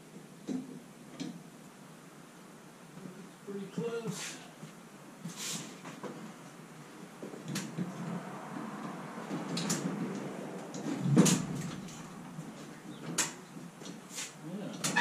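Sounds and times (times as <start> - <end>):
heavy thump: 10.8 - 12.8.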